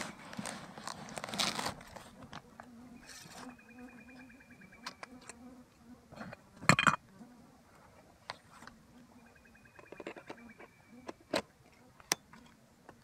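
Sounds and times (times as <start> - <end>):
flying insect buzzing: 2.3 - 7.6.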